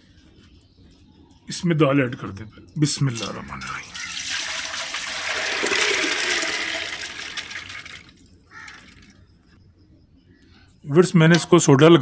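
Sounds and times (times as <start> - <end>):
water gushing into a metal pot: 3.9 - 9.0.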